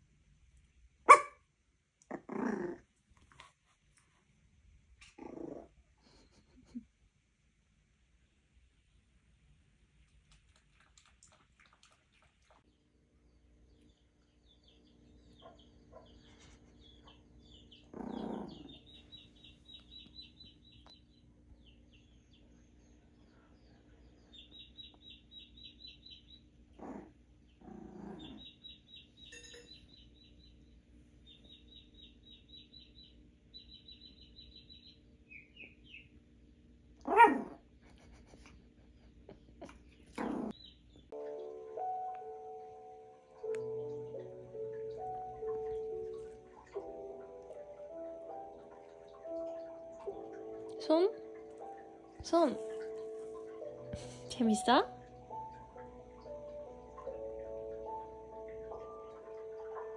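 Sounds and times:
puppy barking in short yelps: 1.1 - 1.4
bird chirping from television: 12.7 - 36.2, 39.8 - 59.9.

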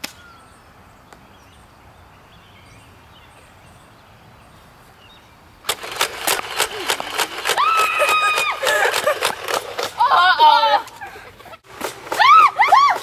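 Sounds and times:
rapid sharp clicks and knocks: 5.7 - 10.0.

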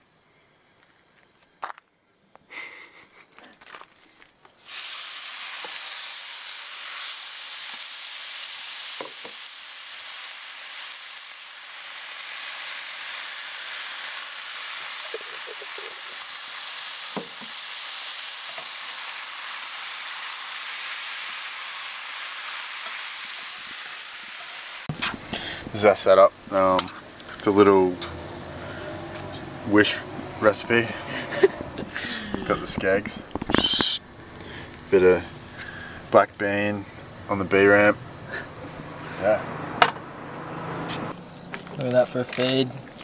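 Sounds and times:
food sizzling in frying pan: 4.6 - 25.8.

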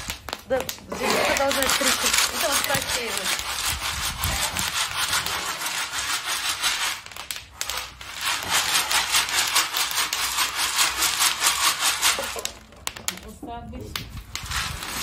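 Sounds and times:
pits crackling and popping: 0.0 - 15.0.

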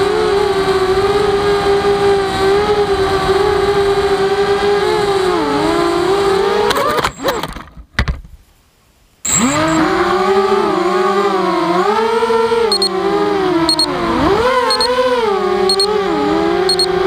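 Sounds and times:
quadcopter motors whining: 9.3 - 17.0.

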